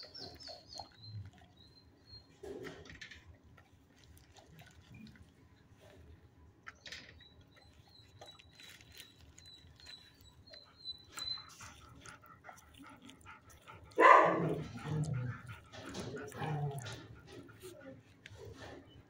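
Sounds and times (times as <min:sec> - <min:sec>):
dog bark: 0:13.9 - 0:15.0.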